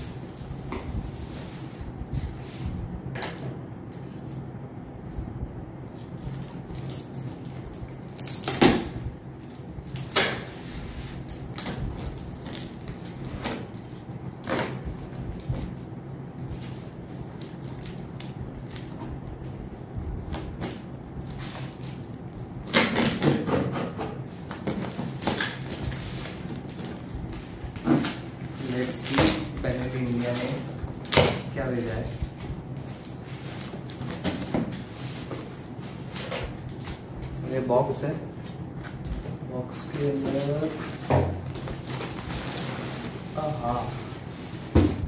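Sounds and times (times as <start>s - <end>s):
box cutter slitting tape: 10.0s - 10.5s.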